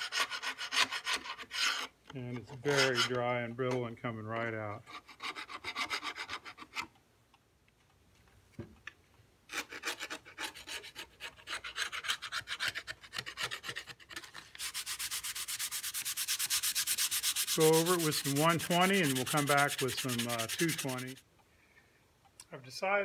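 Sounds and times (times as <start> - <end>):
metal blade scraping glue: 0.0 - 3.2, 9.5 - 21.2
hand sanding: 2.7 - 3.1, 9.5 - 21.2.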